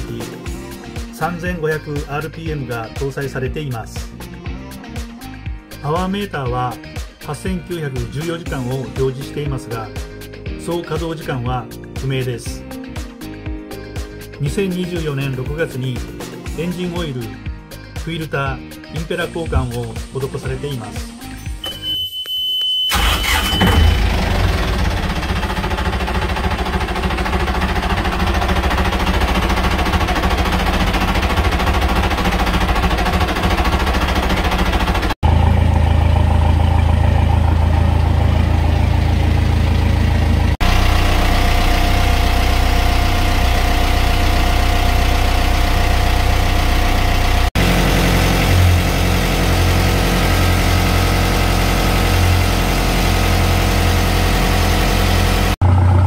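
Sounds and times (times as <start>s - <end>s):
high warning buzzer: 21.6s - 24.0s
marine diesel engine starting and idling: 22.8s - 56.0s.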